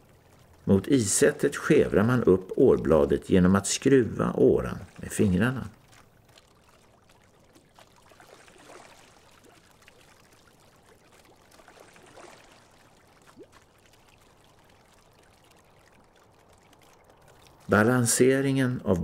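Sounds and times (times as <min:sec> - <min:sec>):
oars swishing and splashing: 0:04.5 - 0:17.8.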